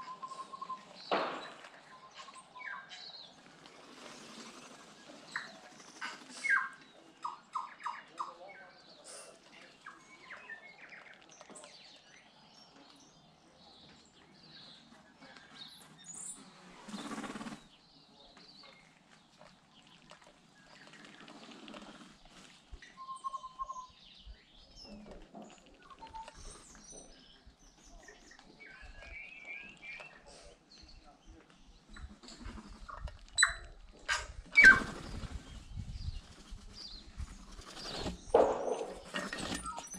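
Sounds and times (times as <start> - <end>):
bird singing: 22.8 - 25.1, 25.8 - 32.2, 36.8 - 39.9.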